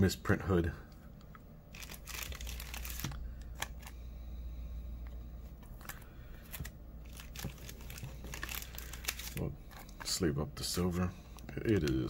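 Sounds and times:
low steady hum: 0.0s - 12.0s
card and plastic rustling: 1.7s - 4.0s, 5.4s - 12.0s.

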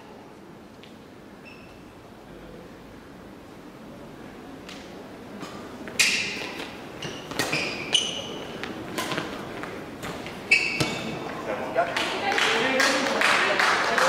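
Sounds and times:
sneakers squeaking on floor: 1.4s - 2.0s, 5.9s - 11.4s
racket hitting shuttlecock: 5.4s - 9.4s.

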